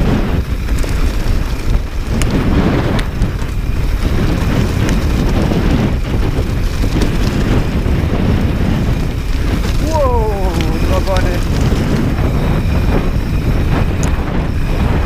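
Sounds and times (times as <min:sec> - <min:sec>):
tyres rumbling over gravel: 0:00.0 - 0:15.0
wind buffeting microphone: 0:00.0 - 0:15.0
stones clicking: 0:08.9 - 0:12.2.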